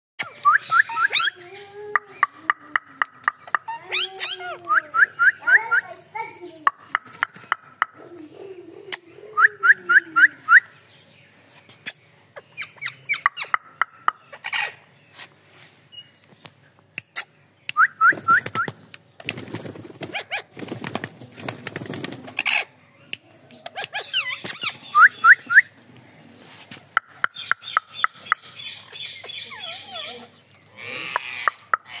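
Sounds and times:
parakeets chirping: 23.7s - 25.5s, 27.3s - 32.0s.

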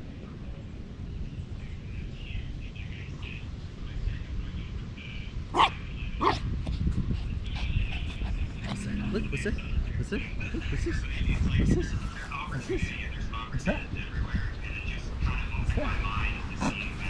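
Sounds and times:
low steady rumble: 0.0s - 17.0s
small dog barking: 5.5s - 6.5s.

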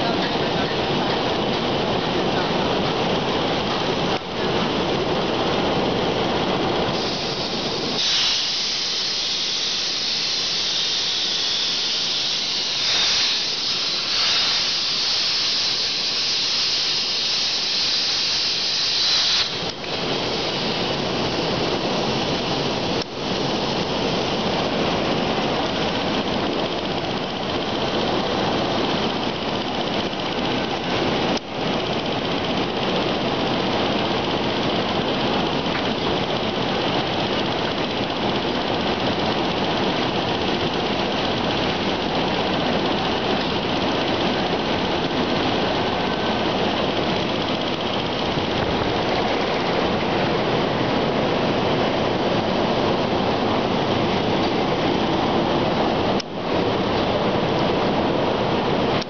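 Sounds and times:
low steady machine noise: 0.0s - 59.0s
plasma torch hissing: 6.9s - 24.2s.

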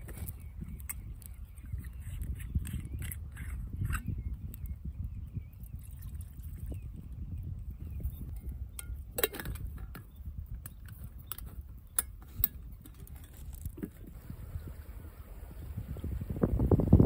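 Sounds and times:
low steady rumble: 13.2s - 17.0s.

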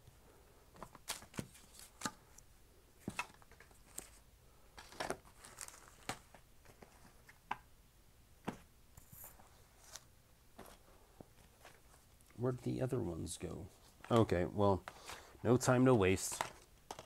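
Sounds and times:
rustling: 3.0s - 7.4s, 8.4s - 12.4s.

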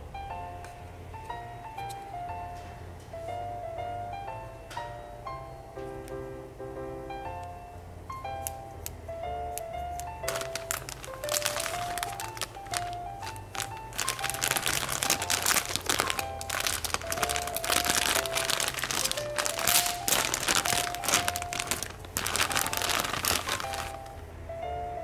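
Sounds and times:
light background melody: 0.0s - 25.0s
plastic bag crinkling: 10.0s - 24.2s.

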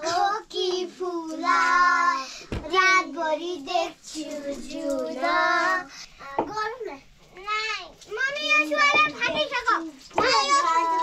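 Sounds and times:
child singing: 0.0s - 6.9s, 10.2s - 11.0s
dull thump: 2.5s - 2.8s.

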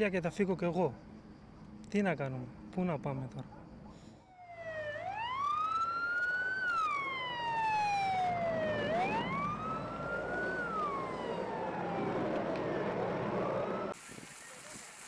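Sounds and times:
emergency vehicle siren wailing: 4.3s - 14.0s.

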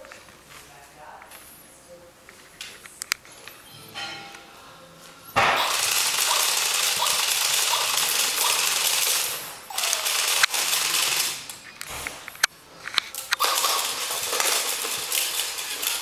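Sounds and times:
robot toy rattling buzz: 5.6s - 11.4s, 13.2s - 16.0s
sharp clicks: 5.6s - 15.4s.

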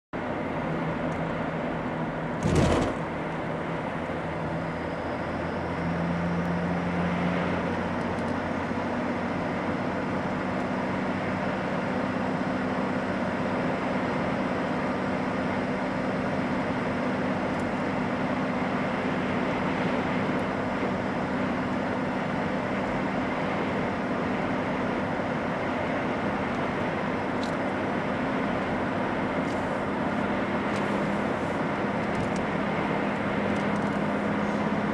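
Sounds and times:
car engine and tyre noise: 0.2s - 34.9s
thump over rails: 2.4s - 3.1s.

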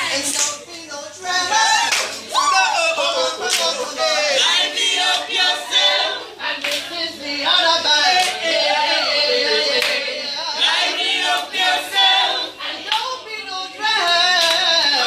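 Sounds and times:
group of voices singing: 0.0s - 15.0s
hand claps: 0.3s - 0.6s, 3.5s - 3.7s, 6.6s - 6.9s, 12.9s - 13.1s, 14.1s - 14.7s.

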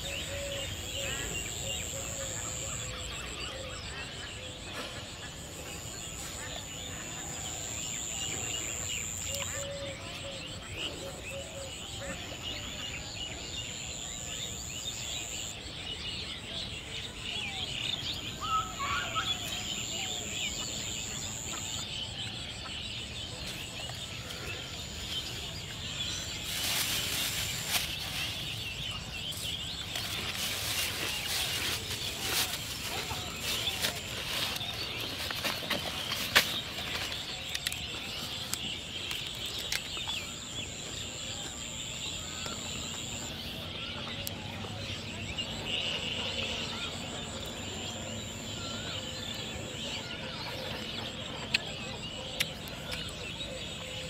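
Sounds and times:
birds chirping: 0.0s - 54.0s
plastic rustling and crinkling: 26.3s - 28.7s, 29.3s - 40.0s.

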